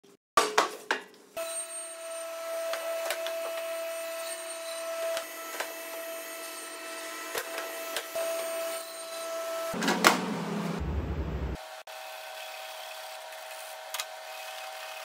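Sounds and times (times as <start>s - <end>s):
saw cutting wood: 1.4s - 10.8s, 11.6s - 15.0s
table saw humming: 1.4s - 15.0s.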